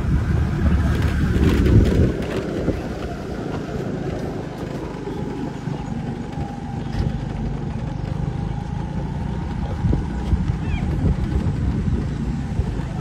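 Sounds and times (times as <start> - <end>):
vehicle engine low rumble: 0.0 - 13.0.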